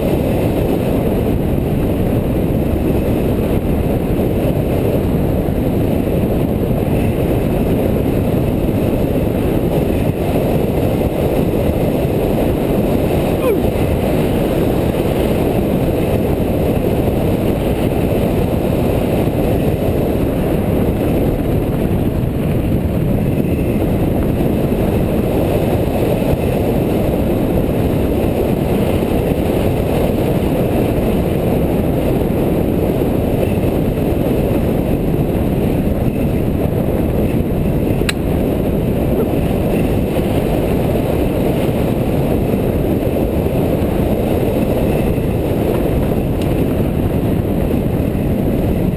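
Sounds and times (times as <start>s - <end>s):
wind rumble on microphone: 0.0s - 48.9s
bike tyres rolling on gravel: 13.9s - 48.9s.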